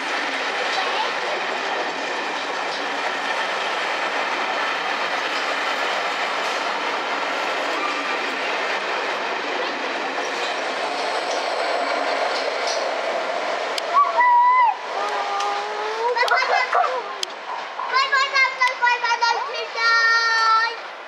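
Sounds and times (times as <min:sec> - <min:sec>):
train wheels rumbling on rails: 0:00.0 - 0:21.0
faint clicks of rail joints: 0:12.3 - 0:12.9.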